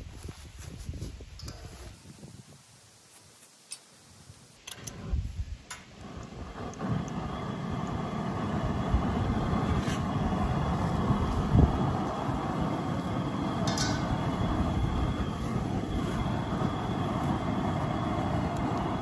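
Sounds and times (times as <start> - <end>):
gas flame rushing: 4.2 - 19.0
burner igniter clicks: 5.7 - 19.0.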